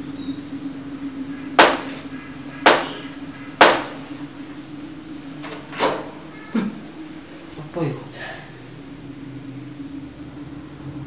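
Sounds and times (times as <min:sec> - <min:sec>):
steady low hum: 0:00.0 - 0:11.0
heavy knocks on wooden door: 0:01.6 - 0:04.1.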